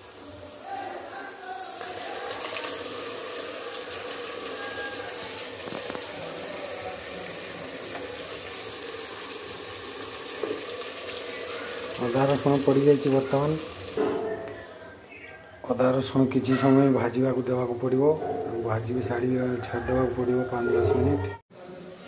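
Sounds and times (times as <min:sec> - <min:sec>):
paste sizzling in hot oil: 0:00.0 - 0:14.0.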